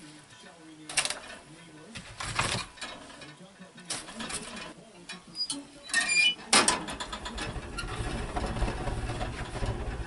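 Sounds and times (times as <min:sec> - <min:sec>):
metal stove door squeaking and clanking: 0:05.3 - 0:09.6
fire rumbling in stove: 0:06.9 - 0:10.0.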